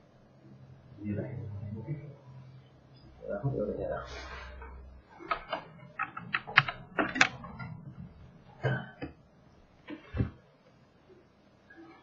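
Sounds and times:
computer mouse and keyboard clicks: 0:05.2 - 0:07.8.

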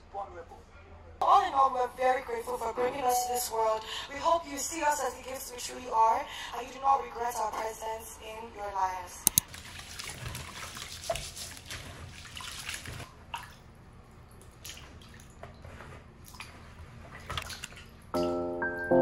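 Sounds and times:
music: 0:03.0 - 0:03.6, 0:18.2 - 0:19.0
water running and splashing: 0:09.4 - 0:13.6.

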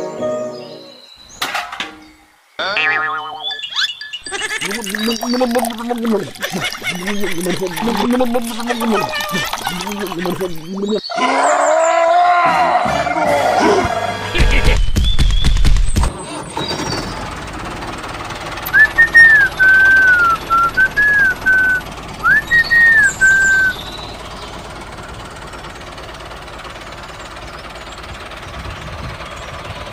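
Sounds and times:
tractor engine drone: 0:02.6 - 0:11.1, 0:12.6 - 0:29.9
whistled tune: 0:18.7 - 0:24.1.

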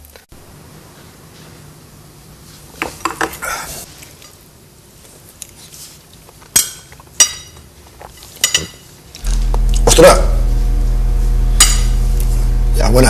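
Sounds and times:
tableware clinking: 0:06.6 - 0:09.0.

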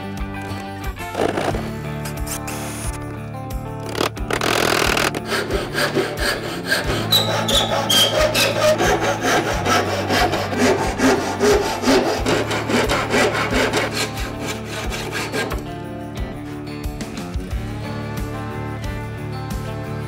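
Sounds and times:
hand saw cutting wood: 0:01.0 - 0:03.0, 0:03.8 - 0:16.7.

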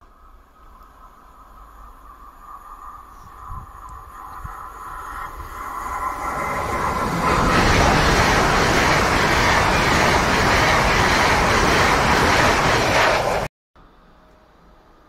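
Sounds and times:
train rushing past: 0:01.7 - 0:13.5.

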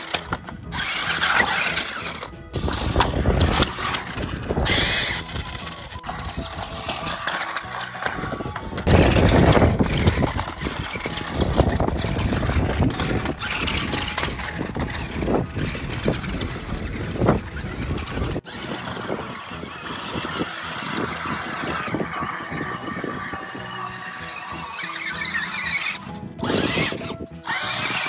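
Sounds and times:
toy truck motor running: 0:00.0 - 0:28.0.

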